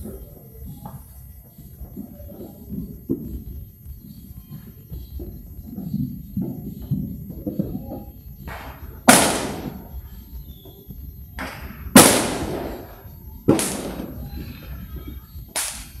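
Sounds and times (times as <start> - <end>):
fireworks exploding: 5.1 - 16.0.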